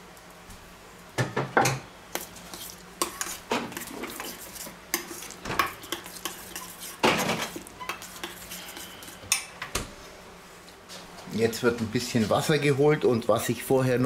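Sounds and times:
spoon scraping metal bowl: 2.2s - 9.2s.

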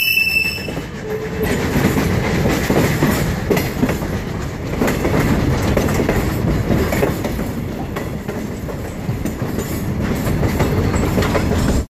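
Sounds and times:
train rumbling on track: 0.0s - 11.9s
wheels clacking over rail joints: 0.2s - 11.9s.

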